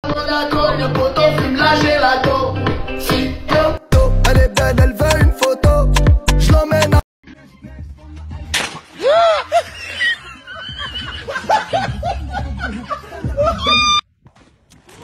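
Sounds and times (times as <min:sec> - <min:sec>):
background music with bass line: 0:00.0 - 0:08.6, 0:10.7 - 0:14.0
sharp smack: 0:08.5 - 0:08.9
people laughing: 0:09.0 - 0:14.0.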